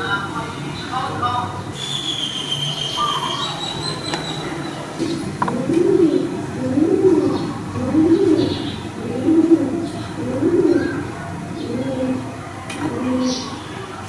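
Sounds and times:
dove cooing: 3.0 - 13.9.

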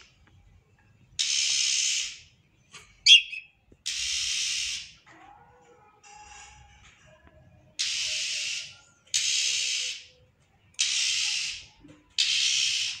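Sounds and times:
bird giving harsh hissing calls: 1.2 - 2.2, 3.1 - 4.9, 10.8 - 13.0.

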